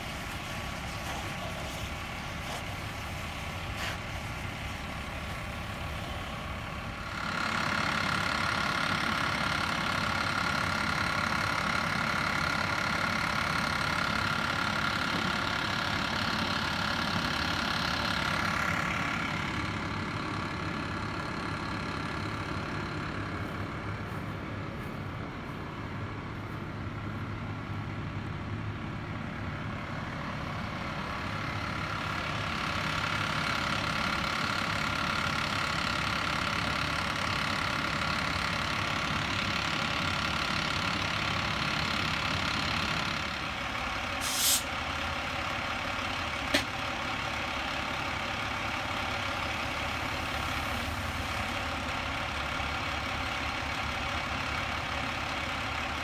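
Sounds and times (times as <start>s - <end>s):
truck engine idling: 0.0s - 56.0s
truck driving past: 2.8s - 56.0s
loud hiss: 44.2s - 44.7s.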